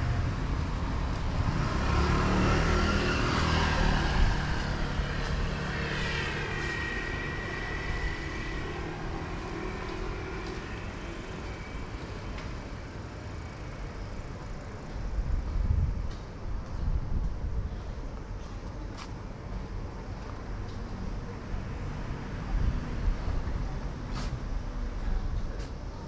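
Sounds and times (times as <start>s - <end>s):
low rumbling noise: 0.0s - 13.0s
vehicle passing with high whine: 0.0s - 14.8s.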